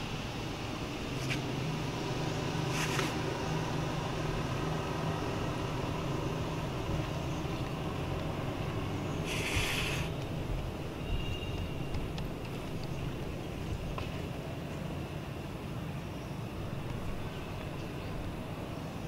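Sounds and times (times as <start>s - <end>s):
low engine hum: 0.0s - 19.0s
short rustle: 2.7s - 3.2s, 9.2s - 10.1s.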